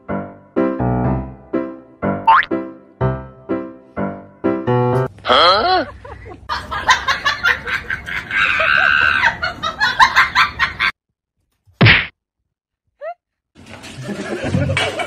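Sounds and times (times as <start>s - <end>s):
people laughing and exclaiming: 5.4s - 10.9s
high drawn-out cry: 8.4s - 9.4s.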